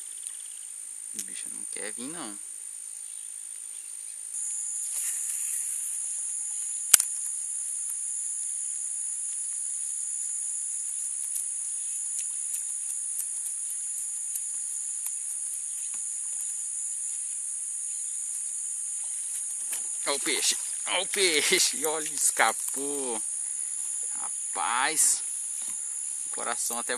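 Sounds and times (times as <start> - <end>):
high-pitched insect chorus: 0.0 - 26.9
faint ticks: 6.4 - 8.0, 10.2 - 16.6
sharp click: 6.9 - 7.3.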